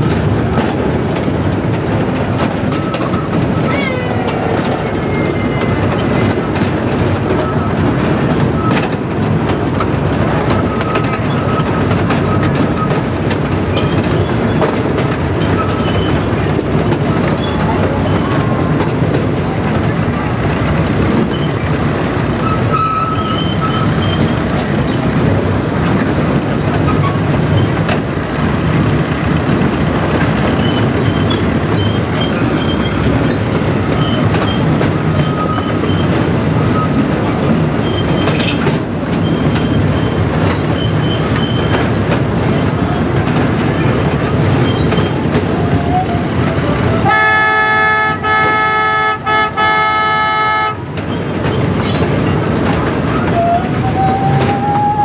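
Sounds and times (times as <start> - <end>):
model train rolling on track: 0.0 - 55.0
train horn chord blasts: 47.0 - 50.8.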